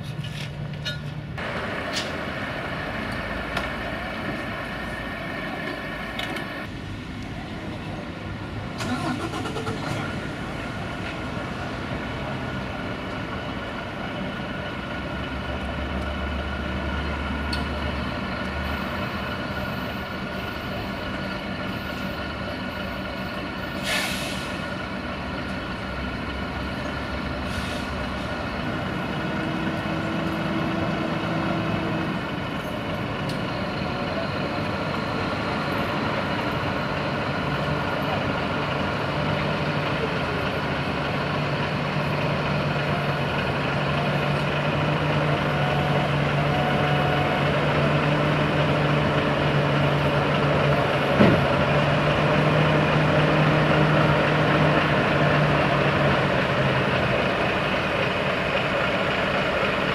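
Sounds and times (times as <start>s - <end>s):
truck diesel engine running: 1.2s - 6.8s, 7.9s - 59.9s
short air hiss: 23.8s - 24.6s.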